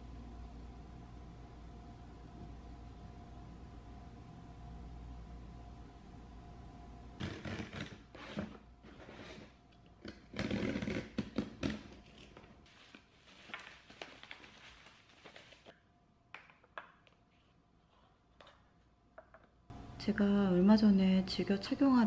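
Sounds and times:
box cutter slitting tape: 0:07.2 - 0:08.6
bubble wrap crinkling: 0:10.1 - 0:15.7
cardboard and packing rustling: 0:10.2 - 0:15.7.

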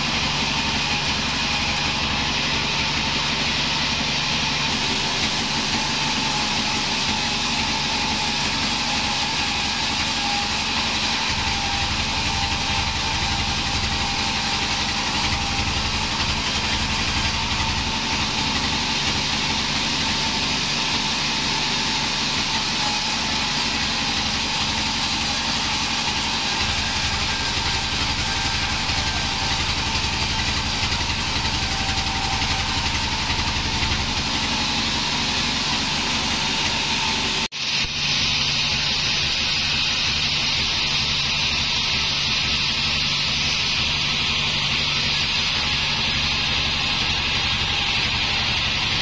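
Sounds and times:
band saw cutting timber: 0:00.0 - 0:49.0.

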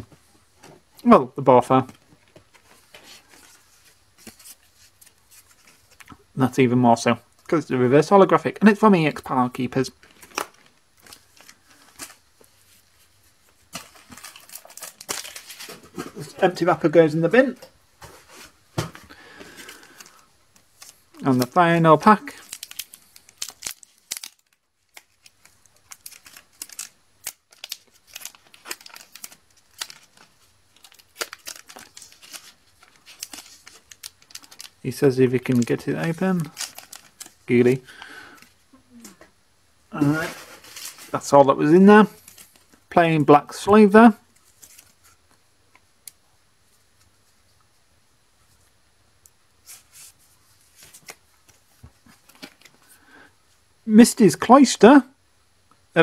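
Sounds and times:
foil wrapper crinkling: 0:13.7 - 0:16.6, 0:19.1 - 0:38.6
trading cards rustling and sliding: 0:49.6 - 0:52.8.

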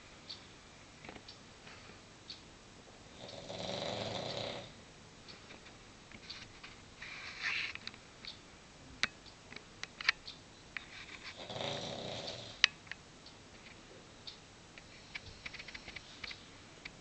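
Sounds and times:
dog snoring: 0:03.1 - 0:04.8, 0:11.3 - 0:12.6.

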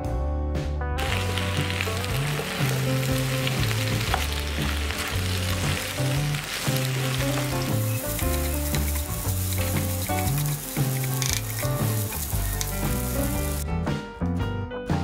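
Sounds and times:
background music: 0:00.0 - 0:15.0
food sizzling in a pan: 0:01.0 - 0:13.6
spatula stirring: 0:02.6 - 0:13.6.

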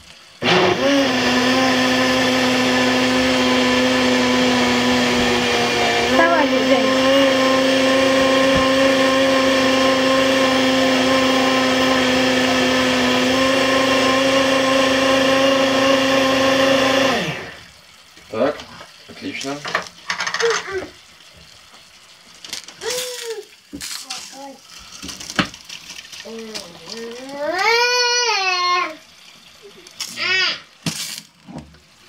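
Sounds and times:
blender motor running: 0:00.4 - 0:17.7.

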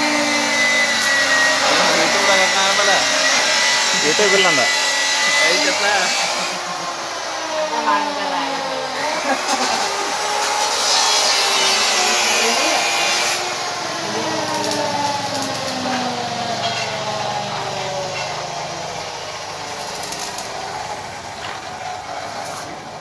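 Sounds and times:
power tool whine slowing: 0:00.0 - 0:23.0.

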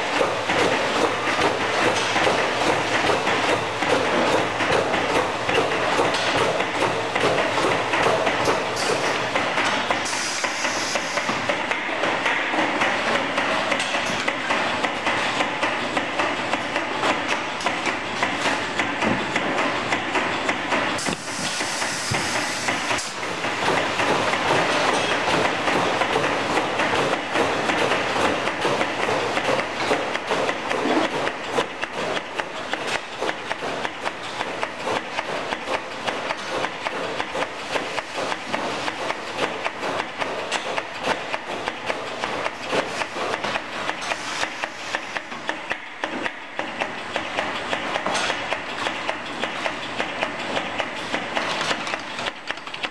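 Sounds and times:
pneumatic hiss bursts: 0:10.0 - 0:11.3, 0:21.0 - 0:22.8.

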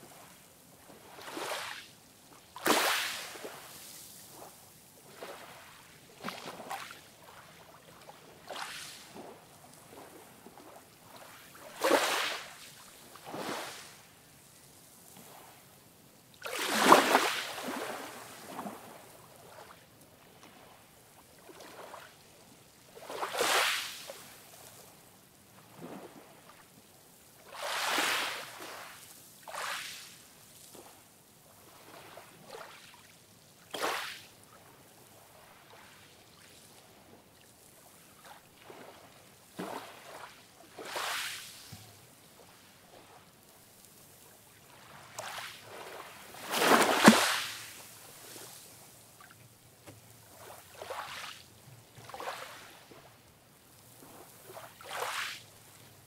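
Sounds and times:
small waves breaking on beach: 0:00.0 - 0:56.0.

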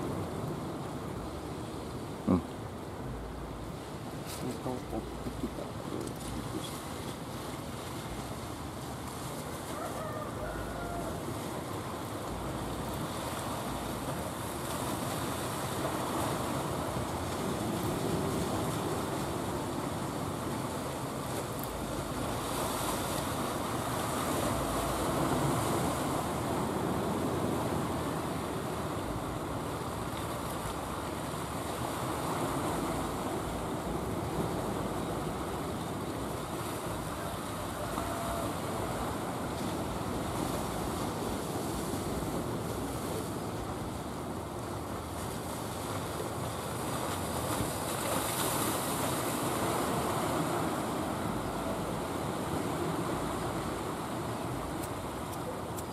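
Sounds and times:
sea surf breaking: 0:00.0 - 0:55.9.

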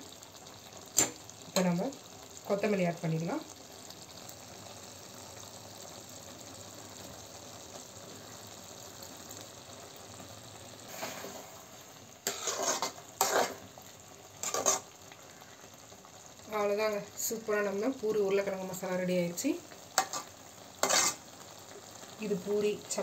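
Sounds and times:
food sizzling in a pan: 0:00.0 - 0:23.0
spoon scraping a pan: 0:12.2 - 0:13.7, 0:14.4 - 0:15.0, 0:20.0 - 0:21.3.

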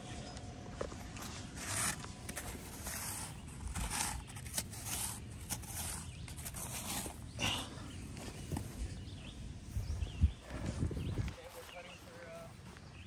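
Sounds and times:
rake scraping through sand: 0:01.0 - 0:07.4.

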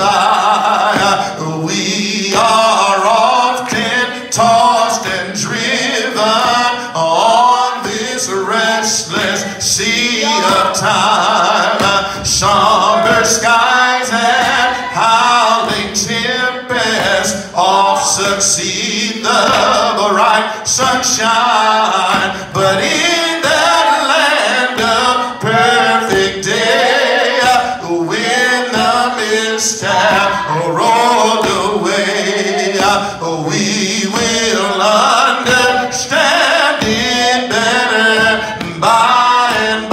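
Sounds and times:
man singing a hymn: 0:00.0 - 0:39.9.

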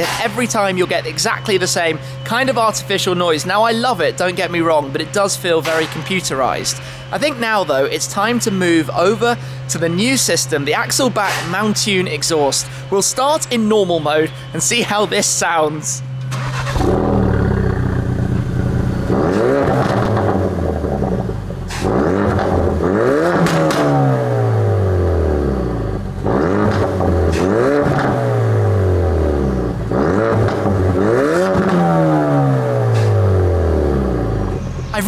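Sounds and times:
car engine revving: 0:16.0 - 0:35.0
exhaust pops and crackles: 0:17.8 - 0:24.0, 0:26.2 - 0:28.3, 0:29.8 - 0:32.3.

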